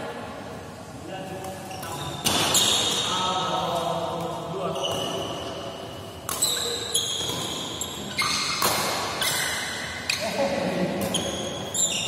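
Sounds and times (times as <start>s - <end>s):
shoes squeaking on court: 1.6s - 3.1s, 4.6s - 10.4s, 11.0s - 12.0s
racket hitting shuttlecock: 1.8s - 3.1s, 6.2s - 9.9s.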